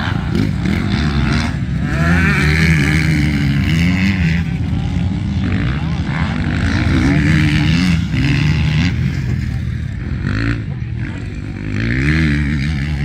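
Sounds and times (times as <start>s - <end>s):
motocross bike engines revving: 0.0s - 13.0s.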